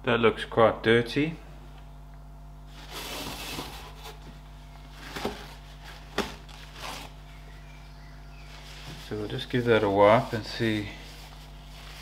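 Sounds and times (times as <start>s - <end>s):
paper towel rustle: 2.7s - 7.2s, 8.4s - 12.0s.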